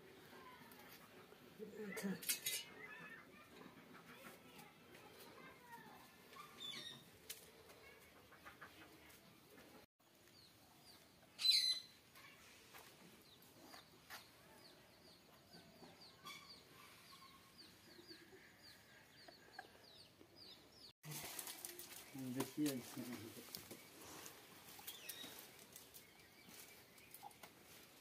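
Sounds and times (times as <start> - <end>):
birds chirping: 1.6 - 8.8, 9.4 - 12.4, 13.2 - 28.0
dry twigs and leaves rustling: 21.0 - 28.0.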